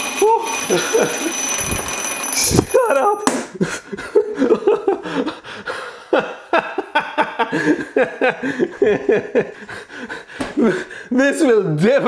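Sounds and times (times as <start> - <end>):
man laughing: 0.2 - 1.4, 2.7 - 11.0.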